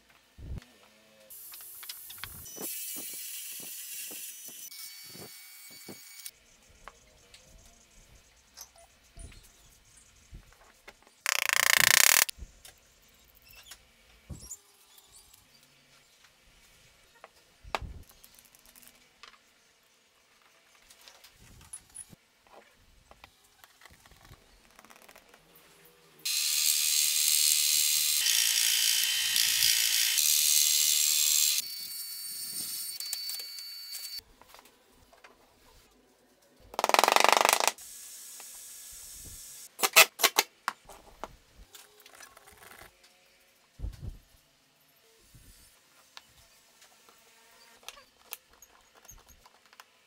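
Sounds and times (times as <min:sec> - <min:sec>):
drill press boring: 0:11.3 - 0:12.3, 0:26.3 - 0:31.6
power tool rasping: 0:11.3 - 0:12.3
sharp clicks: 0:11.3 - 0:12.3.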